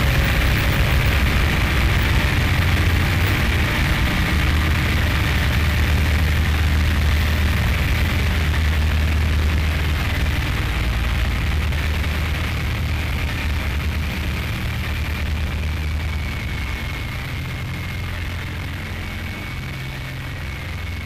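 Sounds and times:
heavy low rumble: 0.0 - 21.0
static hiss: 0.0 - 21.0.

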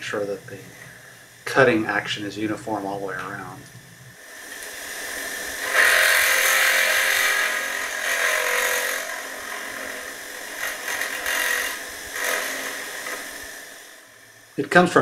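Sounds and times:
case trimmer rasping cut: 5.6 - 13.8.

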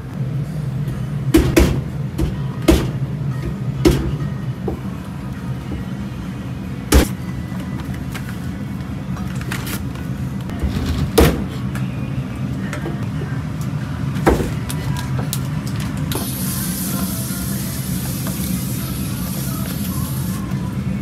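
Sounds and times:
background music: 10.5 - 21.0.

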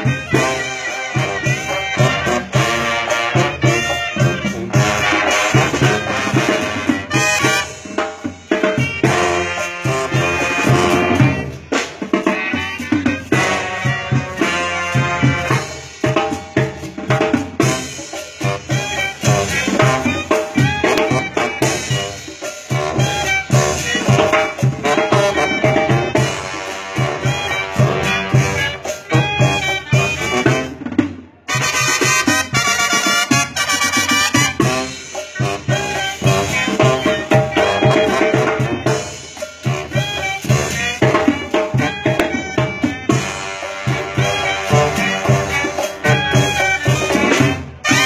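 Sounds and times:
brass band playing: 0.0 - 48.0
bass drum beat: 31.5 - 39.0.

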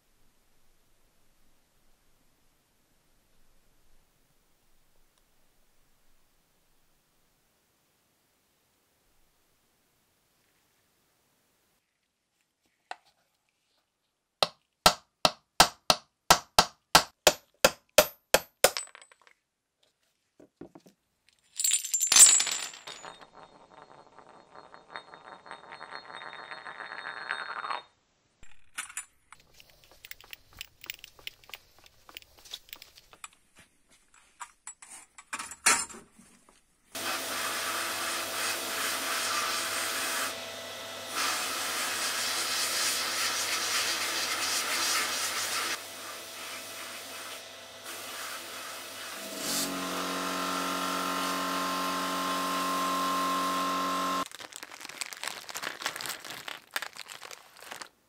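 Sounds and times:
metal parts clinking on table: 18.0 - 19.4, 21.5 - 27.8, 28.4 - 33.4
piece spinning and rattling down: 21.6 - 33.4.

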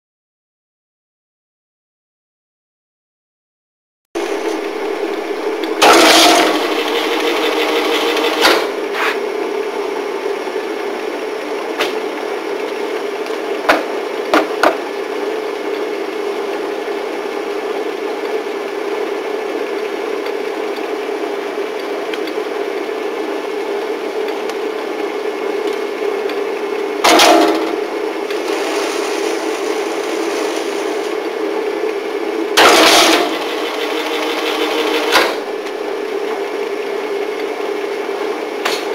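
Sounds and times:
bursts of mechanical noise: 4.2 - 9.8, 27.0 - 31.3, 32.6 - 35.6
binding machine motor hum: 4.2 - 12.8, 27.0 - 36.1.

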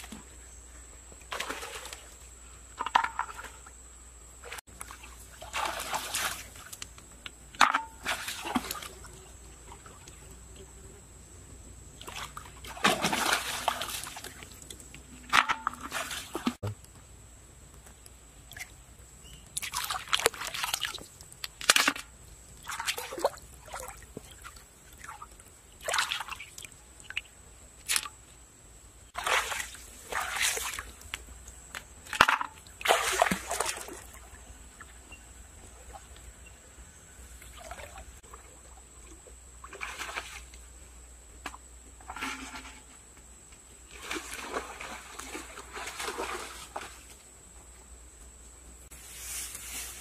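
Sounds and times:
wet mud sloshing and slapping: 12.0 - 14.7.

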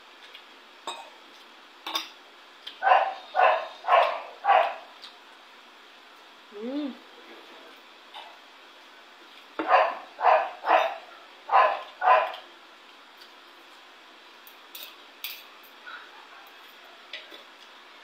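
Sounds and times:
dog barking: 2.8 - 4.9, 9.6 - 12.4.

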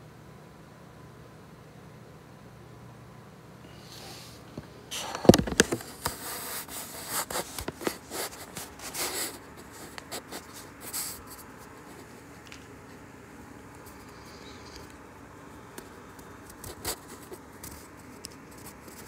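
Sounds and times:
close rubbing and scratching: 4.0 - 12.4, 16.4 - 19.0.

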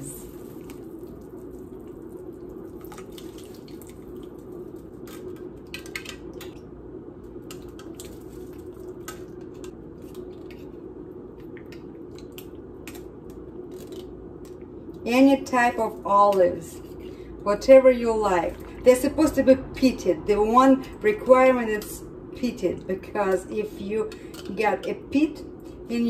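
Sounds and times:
soup bubbling in a pot: 0.2 - 4.9.

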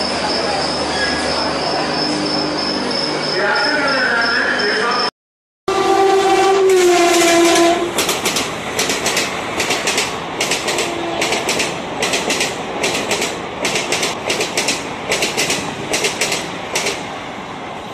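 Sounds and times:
train rolling rumble: 5.7 - 17.9
train wheels clicking over rail joints: 7.0 - 17.2.

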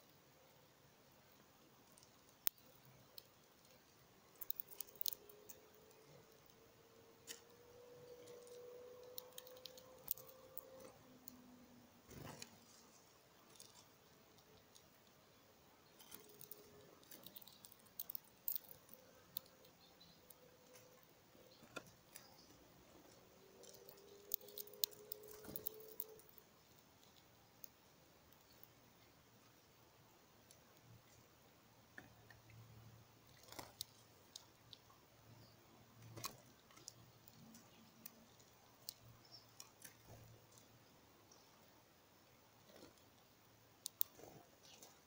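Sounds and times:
bird pecking at seed: 1.7 - 29.0, 42.6 - 45.0.

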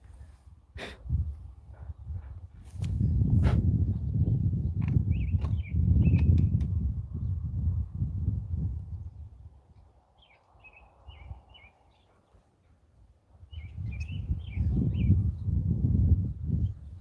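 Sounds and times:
wind on microphone: 0.0 - 11.8, 13.0 - 17.0
small birds chirping: 3.9 - 6.6, 9.0 - 12.8, 13.4 - 15.6.

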